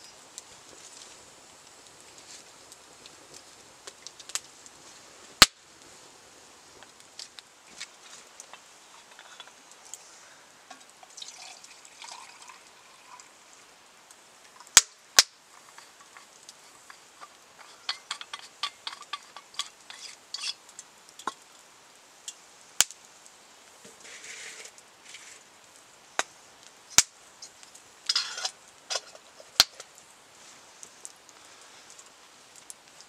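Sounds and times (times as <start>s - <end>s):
wood fire crackling and popping: 0.0s - 33.0s
water pouring into a pot: 10.7s - 13.6s.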